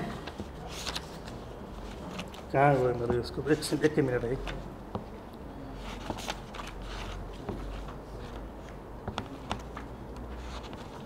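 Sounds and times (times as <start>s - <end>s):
book pages turning: 0.1s - 4.7s, 5.8s - 11.0s
paper rustling: 0.1s - 4.7s, 5.8s - 11.0s.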